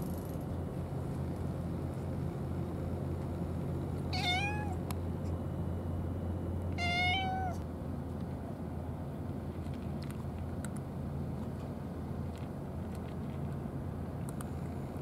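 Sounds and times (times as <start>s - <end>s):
steady low hum: 0.0s - 15.0s
cat meowing: 4.1s - 4.8s, 6.8s - 7.6s.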